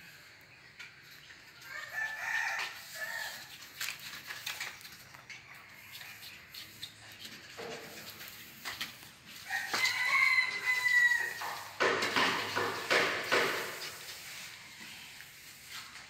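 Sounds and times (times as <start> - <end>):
rooster crowing: 1.6 - 3.5, 9.4 - 11.8.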